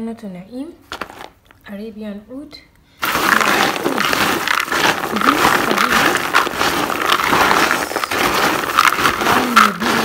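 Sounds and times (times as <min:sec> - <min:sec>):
hard pieces clicking and rustling: 0:03.0 - 0:10.0.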